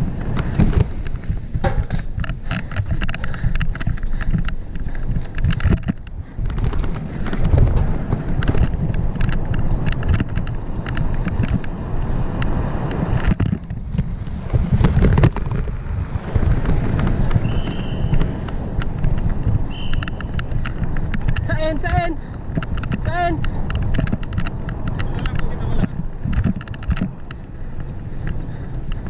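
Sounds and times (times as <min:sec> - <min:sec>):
bike rattling over bumps: 0:00.0 - 0:29.0
wind buffeting microphone: 0:00.0 - 0:29.0.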